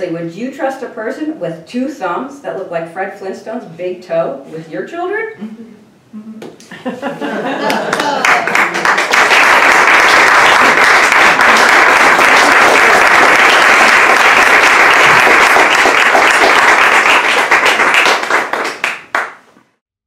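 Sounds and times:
audience applauding: 7.6 - 19.5.

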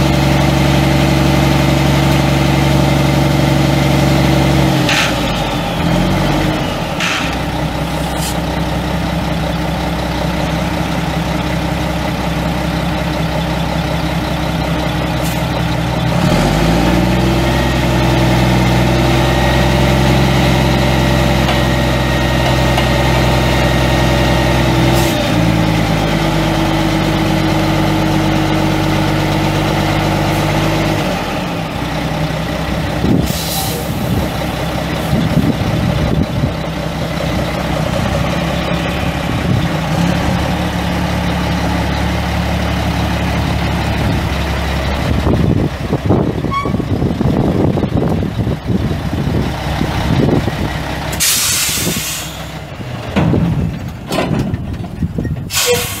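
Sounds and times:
diesel truck engine running: 0.0 - 56.0
air brake clicks and hisses: 8.0 - 8.5, 33.2 - 34.2, 51.1 - 52.5, 55.4 - 56.0.

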